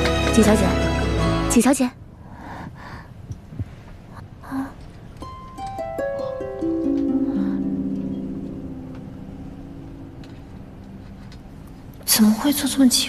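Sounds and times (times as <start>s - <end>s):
background music: 0.0s - 1.9s
plucked string notes: 5.2s - 11.9s.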